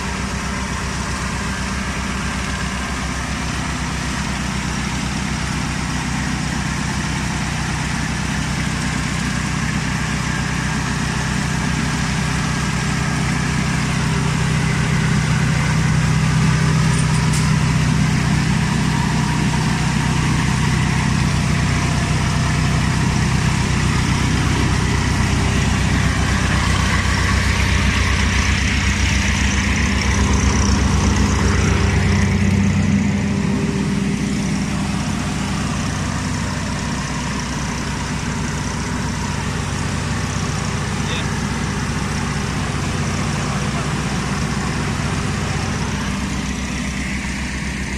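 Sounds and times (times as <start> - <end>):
harvester engine running: 0.0 - 47.9.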